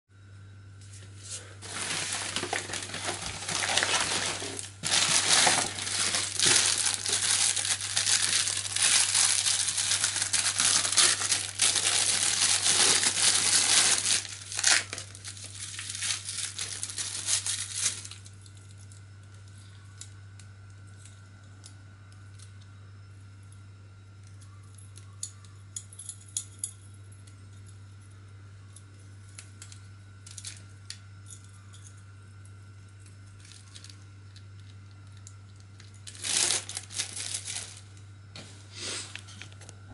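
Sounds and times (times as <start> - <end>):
plastic packaging crinkling: 1.4 - 18.4, 33.4 - 38.1
plastic bag tearing: 1.6 - 18.2, 36.0 - 38.0.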